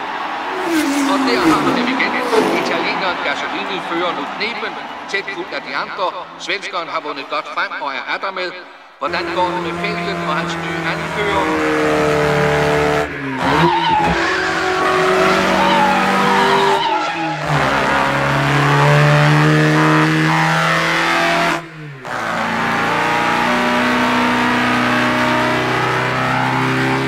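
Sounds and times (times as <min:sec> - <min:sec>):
racing car engines: 0:00.0 - 0:07.5, 0:08.7 - 0:27.0
tyre squeal: 0:00.5 - 0:03.6, 0:13.4 - 0:19.5.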